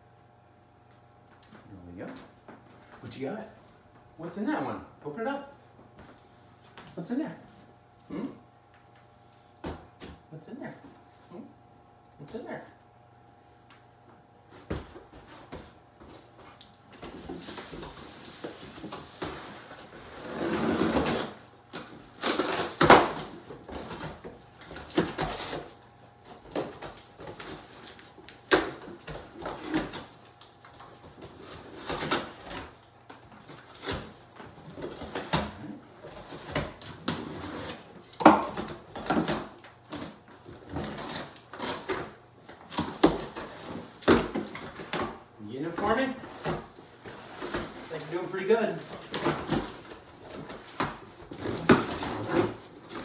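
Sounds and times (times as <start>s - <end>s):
packing tape being cut: 17.4s - 25.9s, 26.5s - 32.8s, 34.8s - 45.2s, 48.8s - 53.0s
cardboard boxes rustling: 45.8s - 53.0s.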